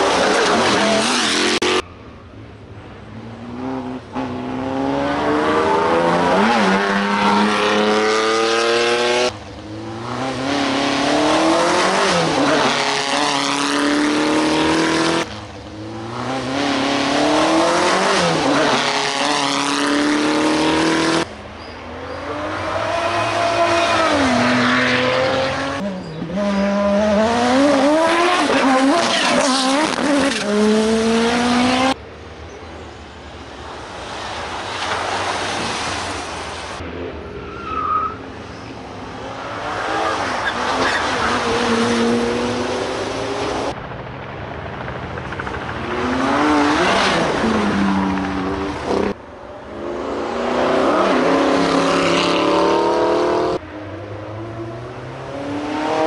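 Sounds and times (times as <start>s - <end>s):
car engines revving past: 3.0s - 21.3s, 22.0s - 32.0s, 45.8s - 56.0s.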